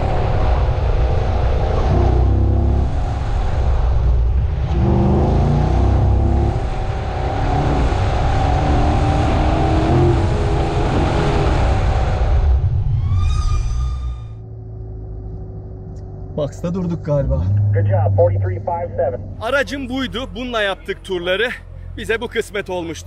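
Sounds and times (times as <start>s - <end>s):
sports car engine revving: 1.7s - 12.3s.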